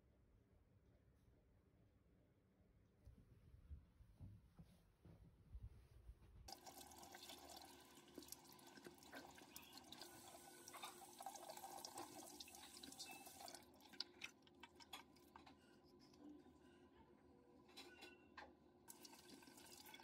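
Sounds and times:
water running from a tap: 6.5s - 15.3s, 18.9s - 20.0s
water dripping: 6.5s - 15.4s, 18.9s - 20.0s.

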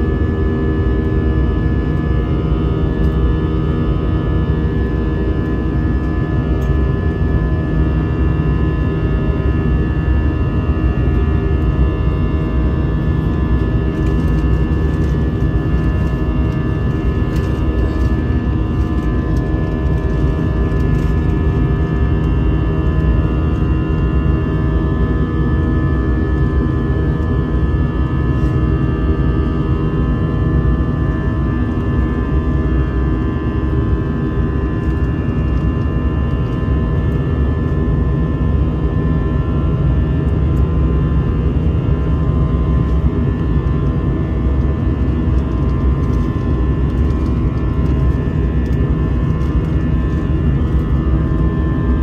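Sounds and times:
jet engine and airflow rush: 40.7s - 52.0s.

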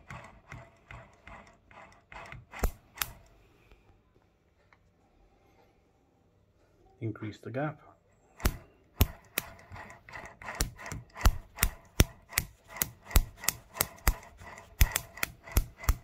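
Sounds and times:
faint rubbing: 8.4s - 16.0s.

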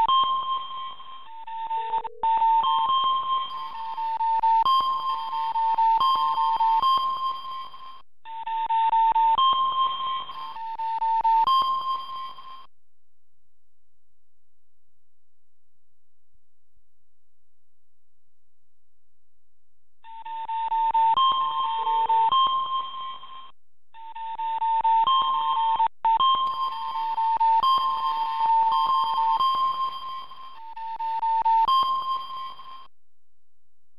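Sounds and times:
electronic alarm beeping: 0.0s - 12.7s, 24.1s - 32.9s
two-tone electronic alert: 0.2s - 8.0s.

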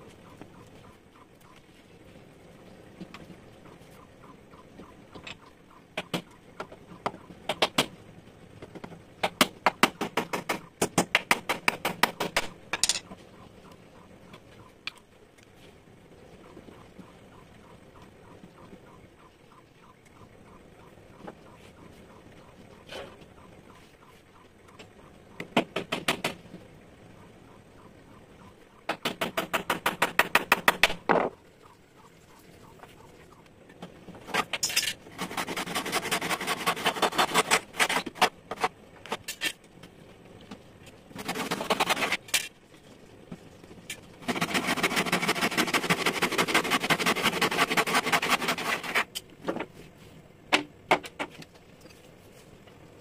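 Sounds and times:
hand saw cutting wood: 35.2s - 38.6s, 41.2s - 42.2s, 44.2s - 49.1s.

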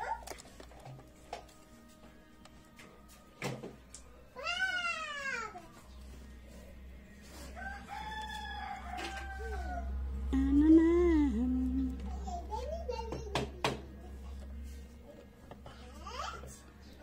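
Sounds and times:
low steady hum: 5.6s - 13.0s.

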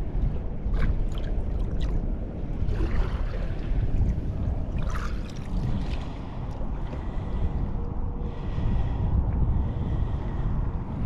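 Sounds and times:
wind rumble on microphone: 0.0s - 11.0s
shallow water sloshing and splashing: 0.1s - 7.1s.

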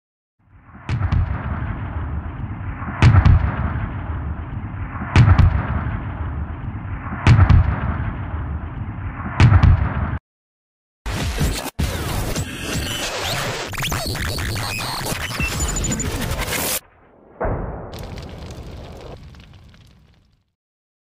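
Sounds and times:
sharp double-struck boom: 16.8s - 19.5s
low rumble: 16.8s - 20.2s.

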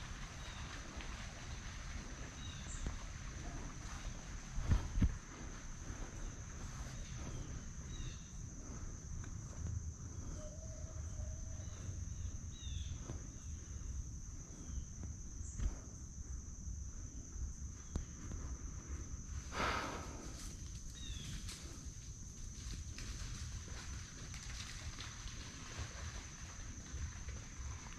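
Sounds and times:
high-pitched insect drone: 10.0s - 13.6s.

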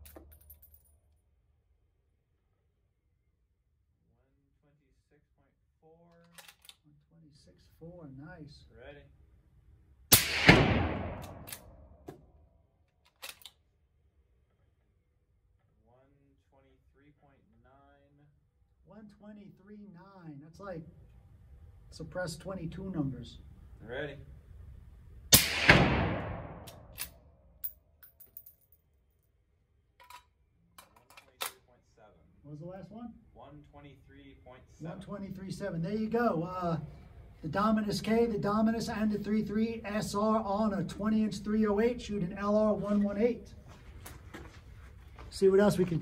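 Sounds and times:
suppressed rifle shot: 10.1s - 11.8s, 25.3s - 26.9s
echo of gunshot: 10.1s - 12.0s, 25.3s - 27.0s.

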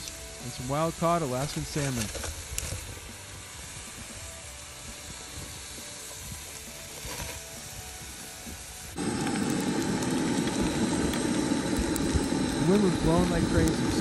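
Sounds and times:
food sizzling on a grill: 0.0s - 14.0s.

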